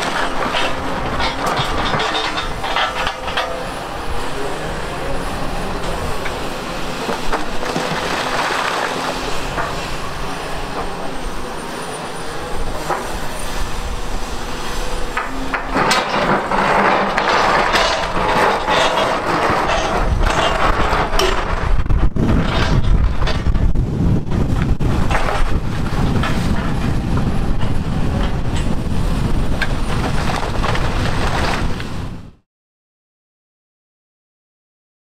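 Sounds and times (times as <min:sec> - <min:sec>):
bucket scraping and knocking rock: 0:00.0 - 0:03.5, 0:07.0 - 0:09.8, 0:15.2 - 0:23.7
excavator running: 0:00.0 - 0:32.4.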